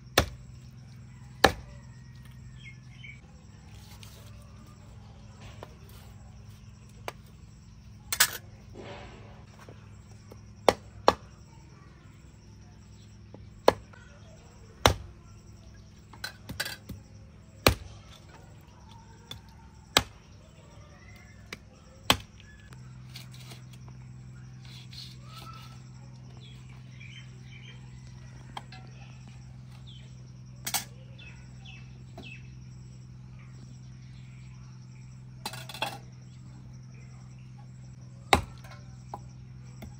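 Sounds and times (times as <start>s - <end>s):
cleaver chopping through bone: 0.2s - 0.4s, 1.4s - 1.7s, 38.3s - 38.7s.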